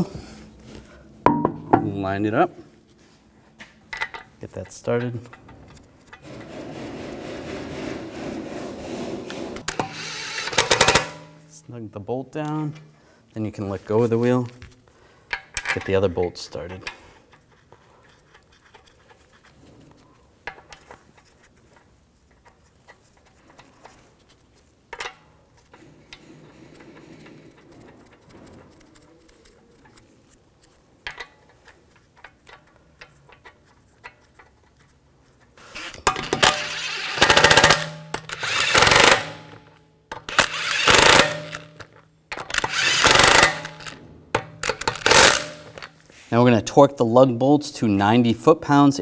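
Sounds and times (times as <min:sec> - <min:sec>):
impact wrench hammering: 0:01.3 - 0:02.0, 0:09.7 - 0:11.4, 0:35.8 - 0:45.9.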